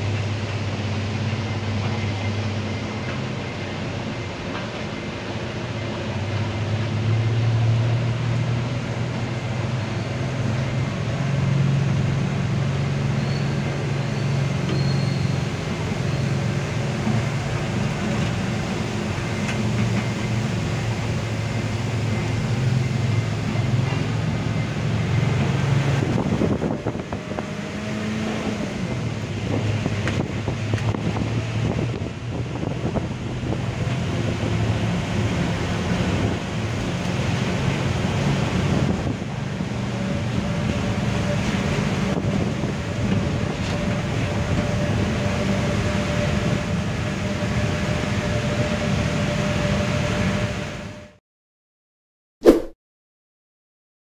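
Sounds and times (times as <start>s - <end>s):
low machinery rumble: 0.0s - 5.0s.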